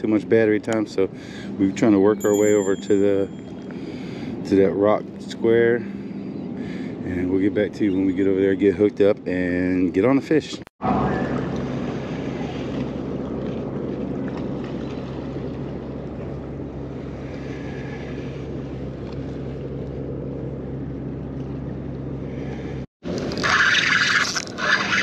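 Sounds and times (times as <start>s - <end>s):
boat motor droning: 0.0s - 25.0s.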